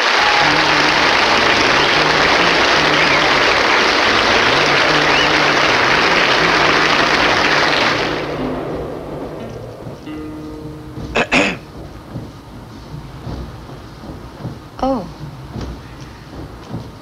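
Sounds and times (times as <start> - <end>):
studio audience applauding: 0.0 - 11.6.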